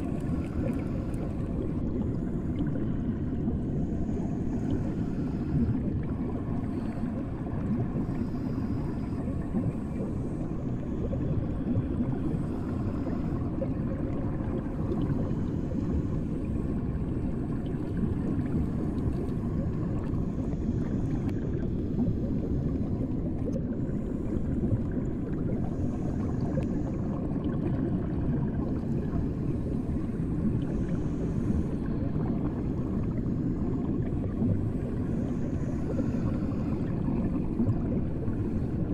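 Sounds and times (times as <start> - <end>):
underwater low rumble: 0.0 - 38.9.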